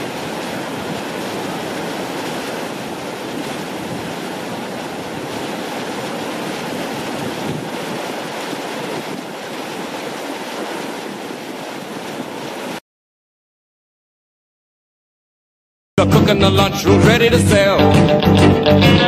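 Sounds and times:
creek running over rocks: 0.0 - 12.8.

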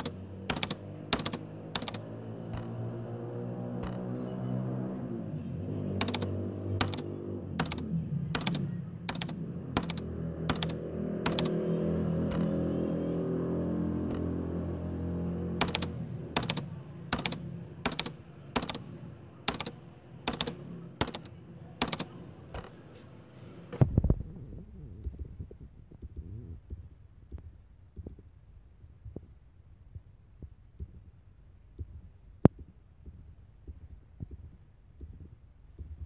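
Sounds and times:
sharp clicks: 0.0 - 2.8, 3.8 - 4.1, 6.0 - 11.6, 15.6 - 22.8.

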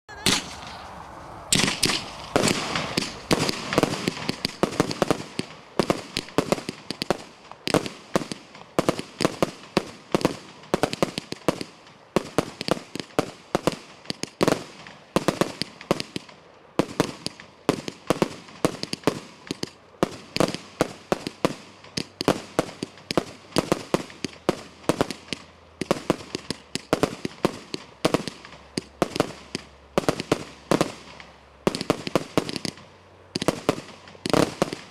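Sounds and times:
firework bangs: 0.1 - 34.9.

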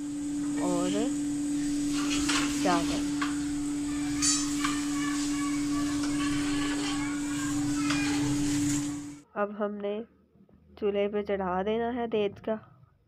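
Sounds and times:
mid-pitched hum: 0.0 - 9.2.

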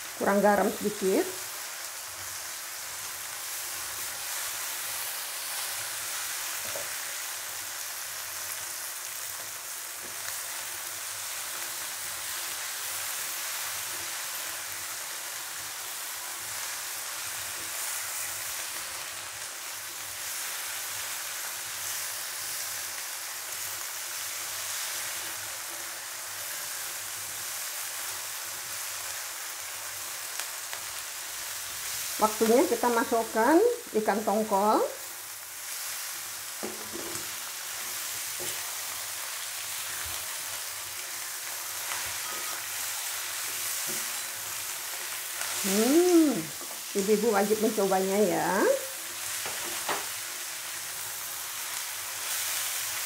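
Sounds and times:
vegetables sizzling in oil: 0.0 - 53.0.

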